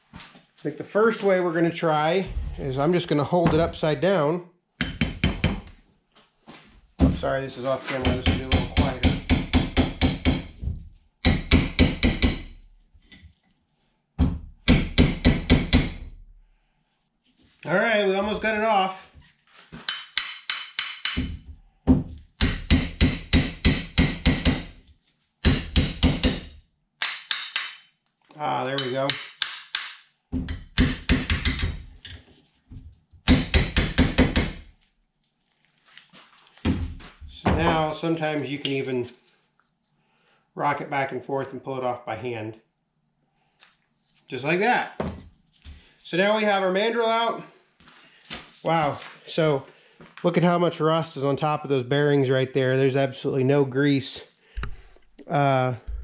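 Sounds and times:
hammer tapping on metal: 4.8 - 5.7, 8.0 - 10.6, 11.2 - 12.5, 19.9 - 21.4, 22.4 - 24.7, 28.8 - 31.8
hammer tapping metal pulley: 19.9 - 21.3.

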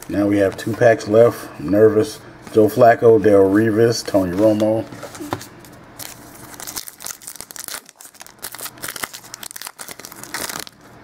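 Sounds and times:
foil wrapper tearing and crinkling: 6.0 - 11.0.

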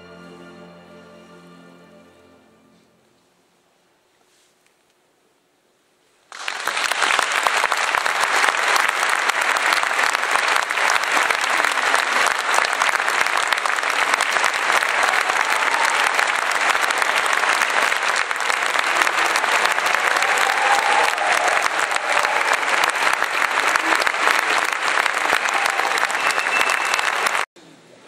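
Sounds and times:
audience applause: 6.3 - 27.5.

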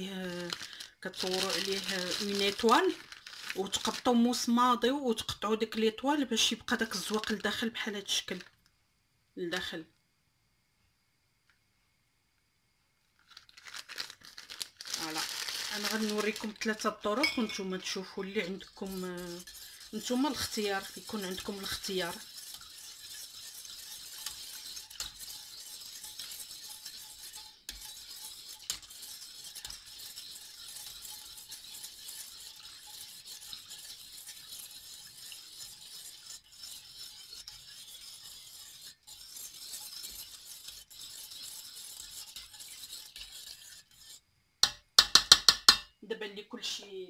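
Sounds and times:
whisk swishing in a pot: 0.0 - 5.4, 6.2 - 8.4, 14.8 - 44.8
whisk ticking against metal: 15.8 - 45.9
sharp metallic knocks: 44.6 - 45.9.

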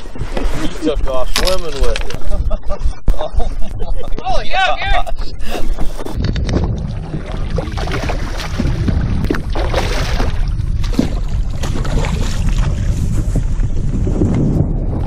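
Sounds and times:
water splashing: 0.0 - 2.4, 5.2 - 14.4
wind buffeting microphone: 0.0 - 15.0.

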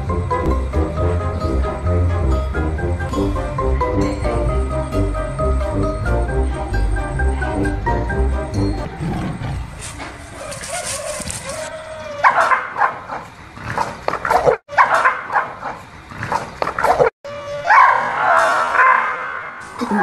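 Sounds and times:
dog barking and yipping: 9.7 - 13.4, 14.3 - 15.9, 16.8 - 19.6.

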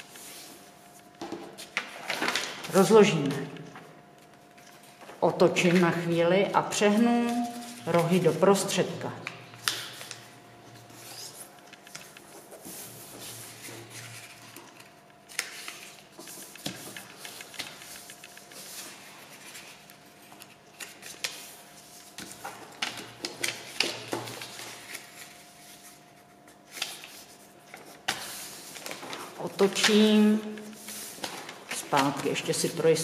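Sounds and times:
paper being folded: 9.6 - 32.9.

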